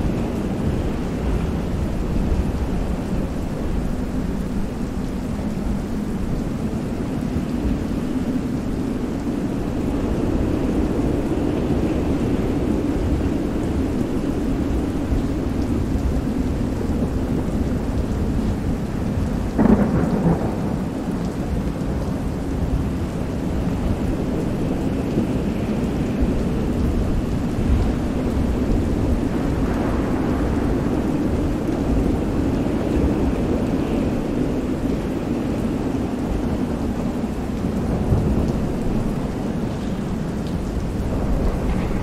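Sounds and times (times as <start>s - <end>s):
steady rain: 0.0s - 42.0s
thunder crack: 19.6s - 21.0s, 41.0s - 42.0s.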